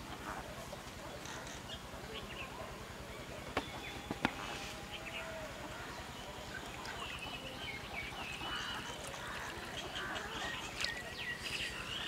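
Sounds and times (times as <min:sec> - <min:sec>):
waterfowl honking: 0:03.8 - 0:10.9.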